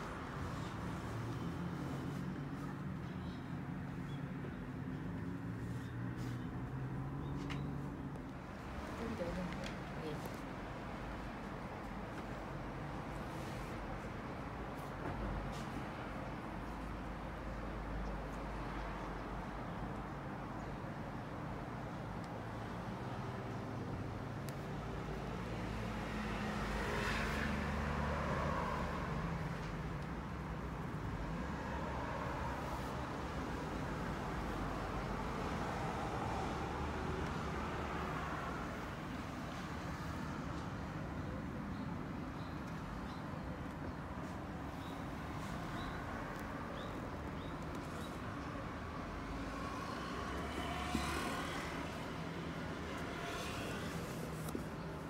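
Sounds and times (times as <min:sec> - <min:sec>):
road vehicle passing: 0:00.0 - 0:20.2, 0:21.3 - 0:42.1, 0:42.7 - 0:55.0
vehicle passing by: 0:25.3 - 0:29.7, 0:49.0 - 0:54.8.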